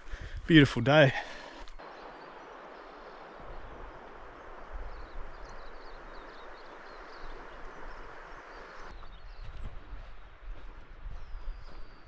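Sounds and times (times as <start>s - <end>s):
river running over stones: 1.8s - 8.9s.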